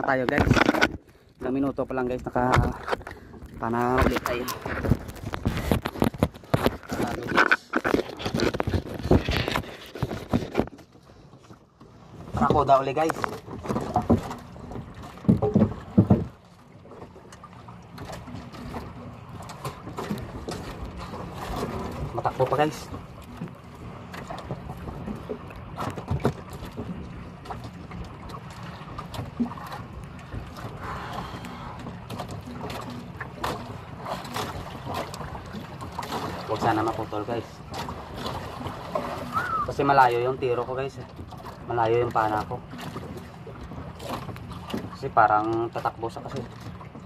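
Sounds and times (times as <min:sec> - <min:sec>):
water: 0:00.0 - 0:47.0
wind: 0:00.0 - 0:47.0
knocks against wooden boat: 0:12.4 - 0:16.4
drips and splashes: 0:12.4 - 0:47.0.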